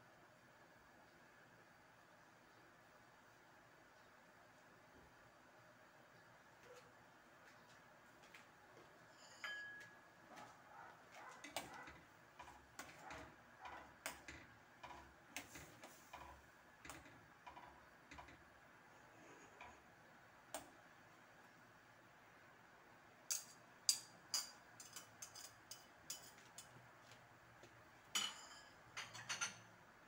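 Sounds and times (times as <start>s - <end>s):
metal ladle clinking on a pan: 9.2s - 9.9s, 23.3s - 26.4s, 28.2s - 29.6s.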